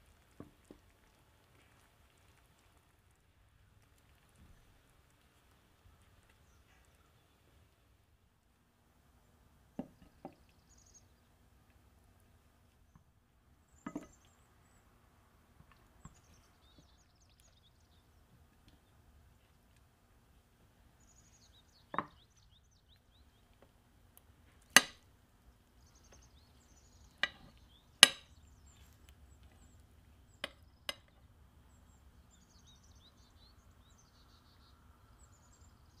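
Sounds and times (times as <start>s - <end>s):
faint bird chirps: 5.8s - 7.9s, 9.9s - 11.4s, 15.7s - 19.6s, 20.9s - 23.6s, 25.7s - 36.0s.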